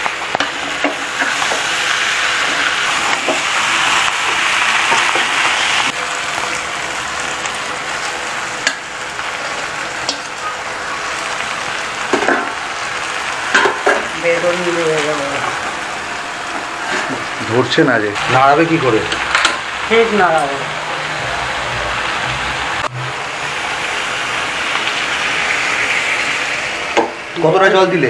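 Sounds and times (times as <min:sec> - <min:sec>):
vegetables sizzling in oil: 0:00.0 - 0:28.0.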